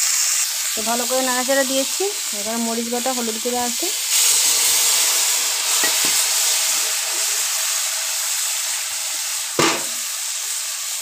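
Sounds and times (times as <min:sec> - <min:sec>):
vegetables sizzling in hot oil: 0:00.0 - 0:11.0
sharp knock: 0:09.6 - 0:10.0.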